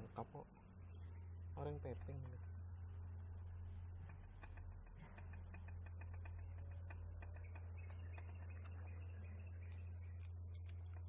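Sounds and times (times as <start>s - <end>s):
steady low hum: 0.0s - 11.0s
small metal clicks and taps: 4.0s - 8.8s, 9.6s - 11.0s.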